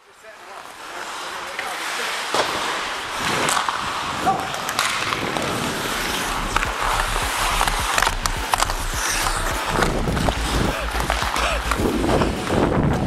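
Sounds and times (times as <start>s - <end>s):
skates scraping on ice: 0.0s - 13.0s
hockey sticks and puck clicking: 0.4s - 13.0s
low rumble: 5.8s - 13.0s.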